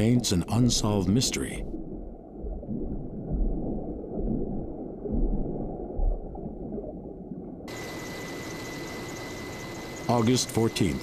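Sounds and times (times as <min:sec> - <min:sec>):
low underwater rumble: 0:00.7 - 0:10.0
steady hiss with high tone: 0:07.7 - 0:11.0.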